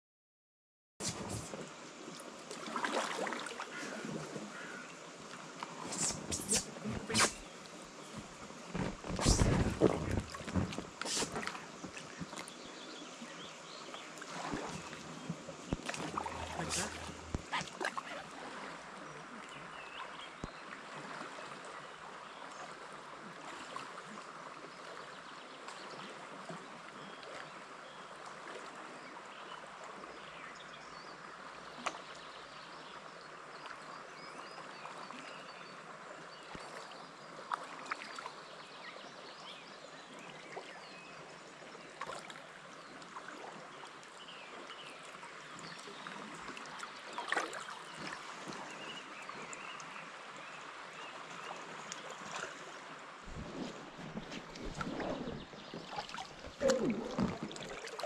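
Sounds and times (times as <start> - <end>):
paddle splashes: 1.0 - 21.8, 36.4 - 38.3, 41.7 - 58.0
running water: 1.0 - 24.6, 40.1 - 58.0.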